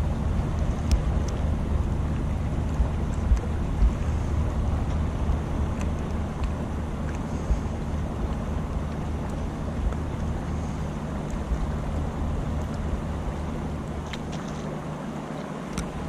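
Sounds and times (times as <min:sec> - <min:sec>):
barge engine drone: 0:00.0 - 0:16.0
wind rumbling on microphone: 0:00.0 - 0:16.0
faint clicks: 0:00.5 - 0:01.4.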